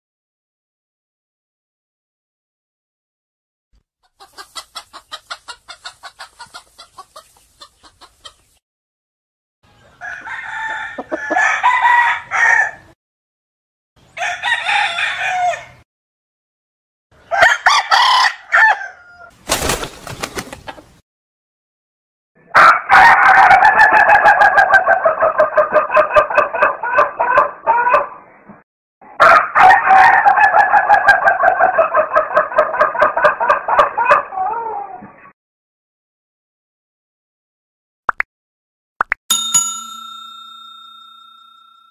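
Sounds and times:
rooster crowing: 0:10.0 - 0:12.9, 0:14.2 - 0:15.8, 0:17.3 - 0:19.3, 0:22.5 - 0:25.4, 0:29.2 - 0:34.8.

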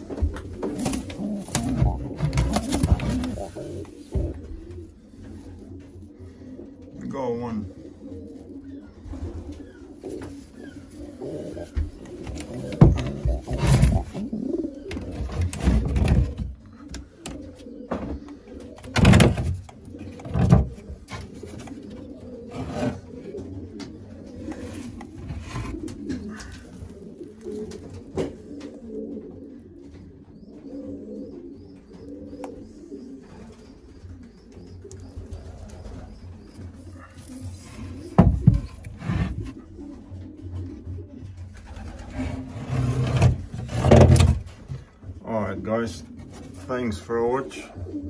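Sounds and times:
knocks and rustles of handling: 0:00.0 - 0:06.0, 0:09.5 - 0:16.6, 0:36.6 - 0:39.6
pigeons cooing: 0:00.0 - 0:48.0.

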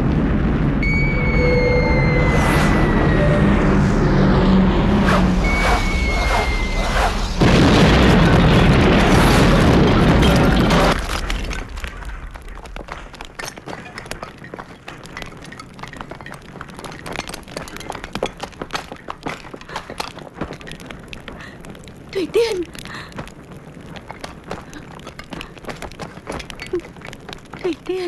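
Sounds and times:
bomb explosion blast: 0:00.0 - 0:12.8
scattered crackles and clicks: 0:05.1 - 0:28.0.

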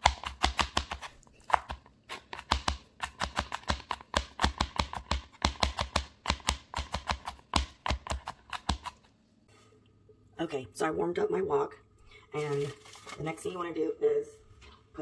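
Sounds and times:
knife chopping on cutting board: 0:00.0 - 0:09.0.

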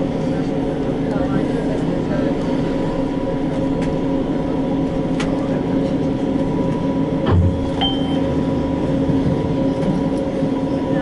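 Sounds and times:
tram equipment hum: 0:00.0 - 0:11.0
low thump: 0:07.3 - 0:07.8
short high beep: 0:07.8 - 0:08.3.

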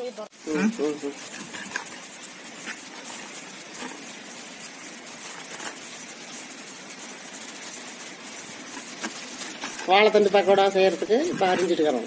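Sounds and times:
steady background hiss: 0:00.0 - 0:12.0.

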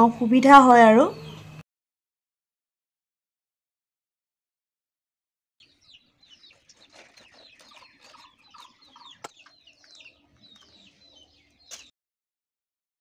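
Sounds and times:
chickens clucking: 0:05.6 - 0:11.9
high falling chirps: 0:05.6 - 0:11.9.

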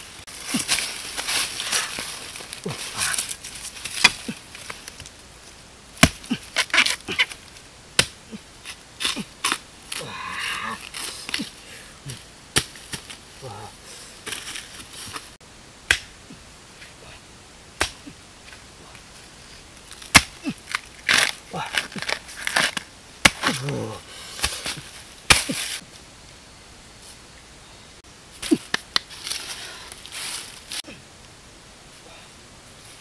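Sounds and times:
machete chopping bamboo: 0:06.0 - 0:07.0, 0:08.0 - 0:08.2, 0:15.9 - 0:16.1, 0:17.8 - 0:18.0, 0:20.1 - 0:23.8, 0:24.4 - 0:25.6.

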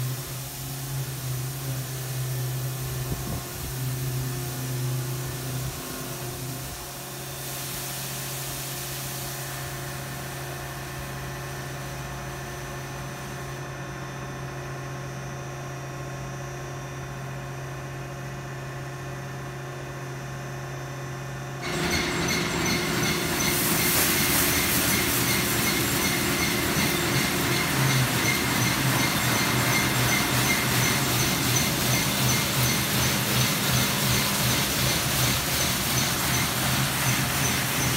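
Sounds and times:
car wash machinery humming: 0:00.0 - 0:37.9
water spray hissing: 0:22.6 - 0:27.4.

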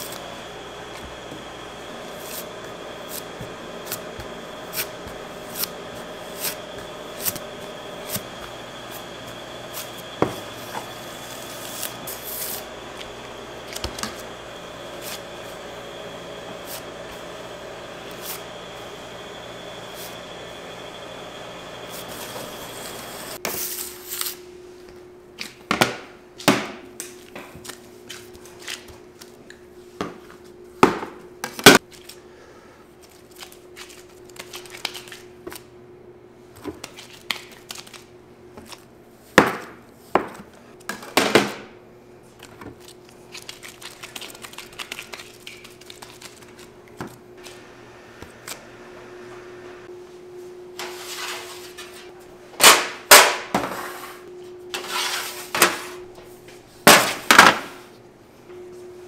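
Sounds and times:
low machine hum: 0:00.0 - 0:23.4.

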